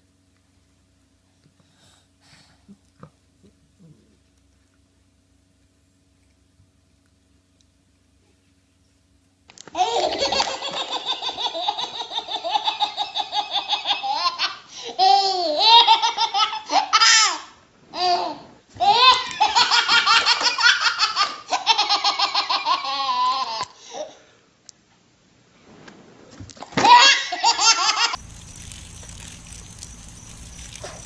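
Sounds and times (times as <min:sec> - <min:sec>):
baby squealing laughs: 0:26.8 - 0:28.2.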